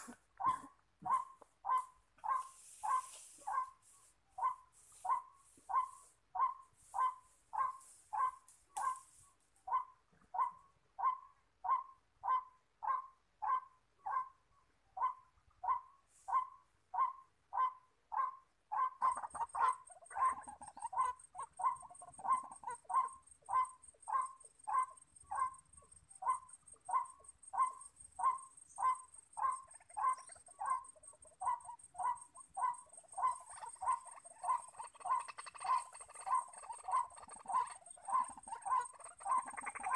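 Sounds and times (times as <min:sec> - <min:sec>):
overlapping bird calls: 0:00.0 - 0:39.9
waterhen calling: 0:18.8 - 0:39.9.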